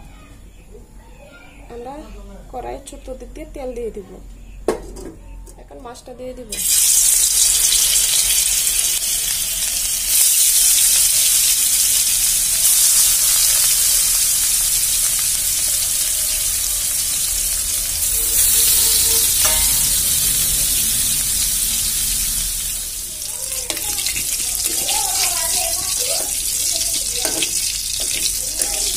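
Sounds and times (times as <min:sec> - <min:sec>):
fish frying in hot oil: 0:06.5 - 0:28.9.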